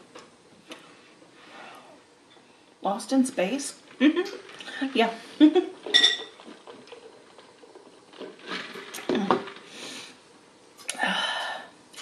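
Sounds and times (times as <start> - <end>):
person eating and drinking: 3.8 - 12.0.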